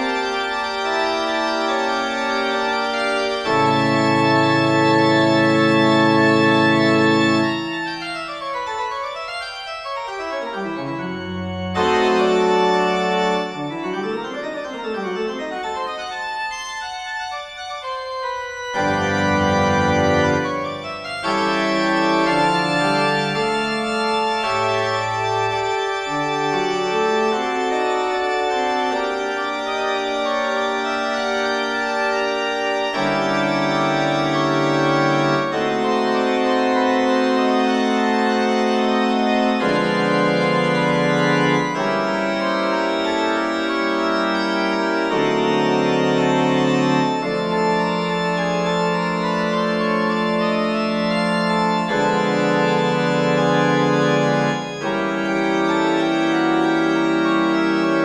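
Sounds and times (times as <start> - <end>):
organ playing held chords: 0.0 - 58.0.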